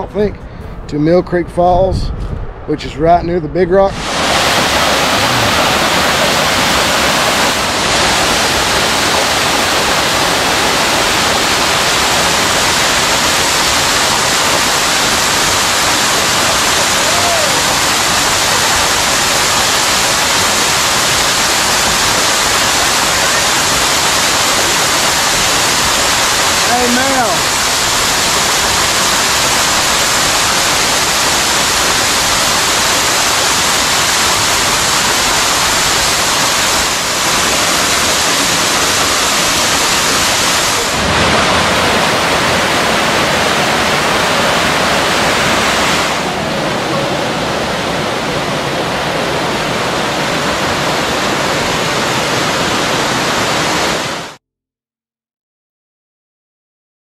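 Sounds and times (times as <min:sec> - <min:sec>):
waterfall rushing over rock: 0:03.9 - 0:54.4.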